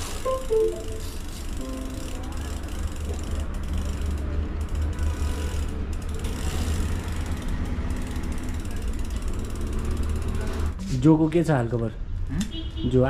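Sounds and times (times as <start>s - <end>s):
mechanical ratcheting clicks: 2.0s - 10.6s.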